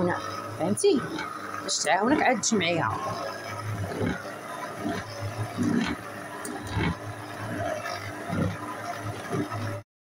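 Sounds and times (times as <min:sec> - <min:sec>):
stand mixer motor hum: 0:00.0 - 0:09.8.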